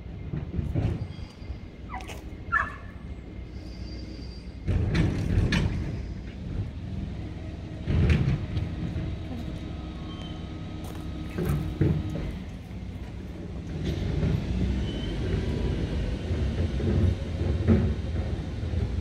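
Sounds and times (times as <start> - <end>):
garbage truck engine running: 0.0 - 19.0
mechanical clanks and knocks: 4.6 - 6.7, 7.8 - 9.2, 11.3 - 12.6.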